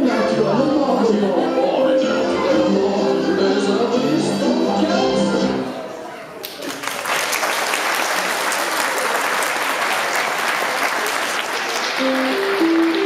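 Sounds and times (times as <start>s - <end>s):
audience applauding: 6.4s - 13.0s
simple melody: 12.0s - 13.0s.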